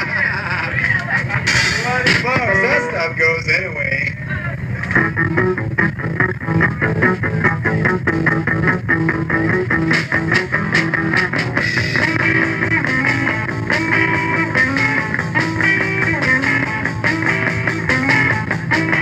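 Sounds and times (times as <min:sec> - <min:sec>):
live rock band playing: 0:01.1 - 0:03.6, 0:05.0 - 0:19.0.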